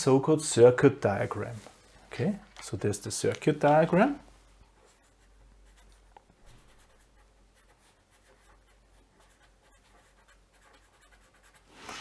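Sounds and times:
pen scratching on paper: 4.7 - 12.0.

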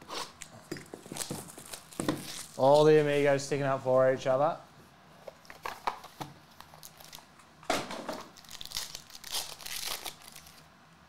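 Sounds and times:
card pack wrapper crinkling and tearing: 1.0 - 2.9, 5.5 - 7.3, 8.3 - 10.7.

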